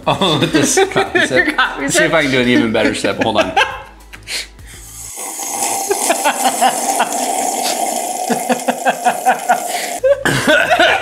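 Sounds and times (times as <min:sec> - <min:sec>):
man slurping coffee: 0:04.8 - 0:10.0.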